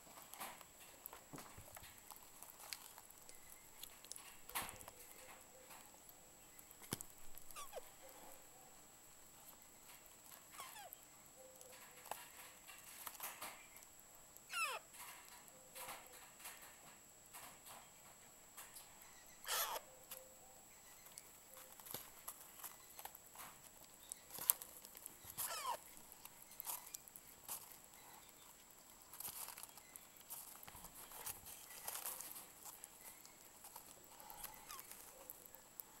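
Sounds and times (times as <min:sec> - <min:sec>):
parakeet chicks squeaking and chirping: 0:07.4 - 0:08.3, 0:10.4 - 0:13.7, 0:14.5 - 0:16.6, 0:19.0 - 0:23.1, 0:24.0 - 0:28.6, 0:29.2 - 0:35.5
soft feeding clicks: 0:09.4 - 0:36.0.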